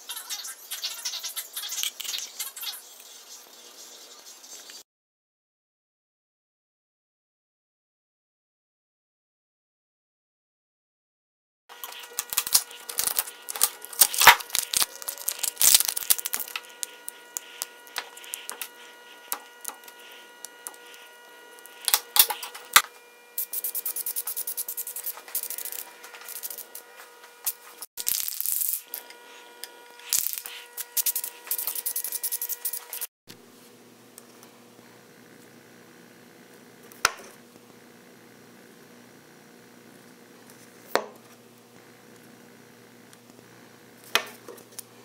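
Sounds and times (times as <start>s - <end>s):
faint steady hum: 11.7s - 45.0s
putty knife scraping resin: 11.8s - 22.8s.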